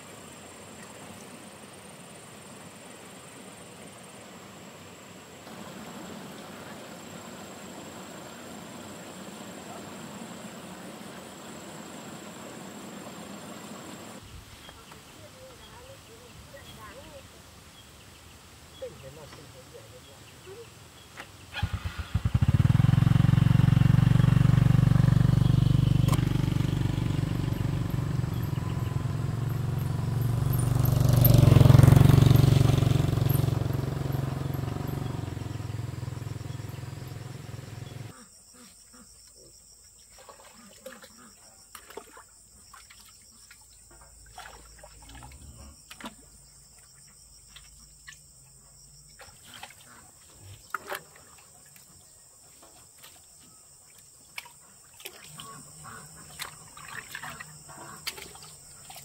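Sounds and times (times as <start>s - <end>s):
insects chirping: 0.0s - 59.0s
motorcycle engine running: 21.5s - 38.1s.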